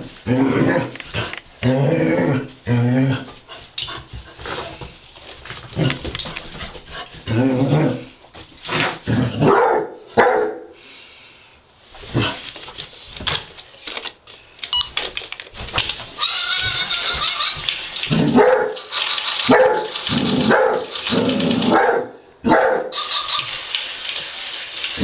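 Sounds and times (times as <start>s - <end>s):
dog barking and baying: 9.4s - 10.7s, 18.1s - 23.2s.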